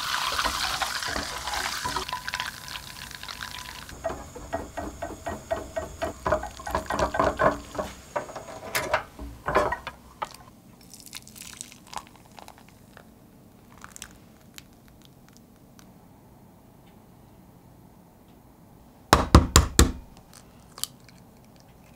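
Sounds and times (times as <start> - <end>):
whisk ticking against pan: 0.0 - 10.0
butter crackling: 0.0 - 12.9
butter being poured: 0.0 - 13.0.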